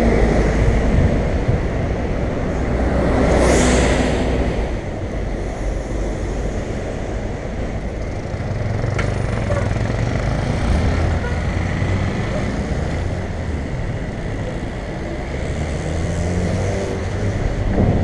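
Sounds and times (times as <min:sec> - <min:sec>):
wind rumble: 0:00.0 - 0:15.6, 0:16.4 - 0:18.0
city traffic: 0:00.0 - 0:18.0
motorcycles running: 0:07.4 - 0:18.0.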